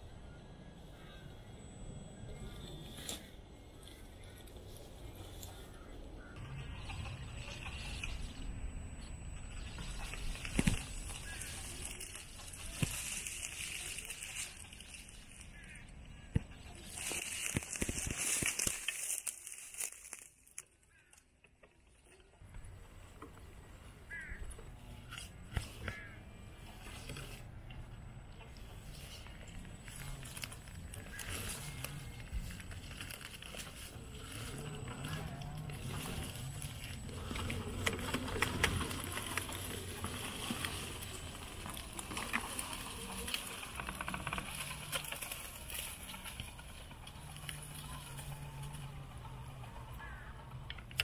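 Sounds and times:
leaves crackling under tyres: 9.3 - 21.1, 28.3 - 51.0
toy truck motor humming: 26.4 - 51.0.

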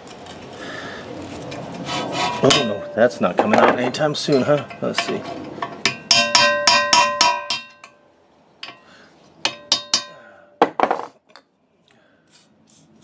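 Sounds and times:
hammer tapping chisel on metal: 2.4 - 8.0, 9.4 - 11.0.

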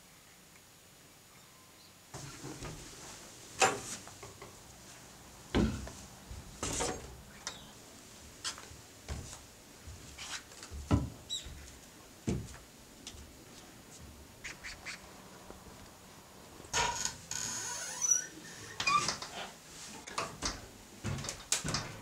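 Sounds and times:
boot footsteps on wooden floorboards: 8.5 - 13.3.

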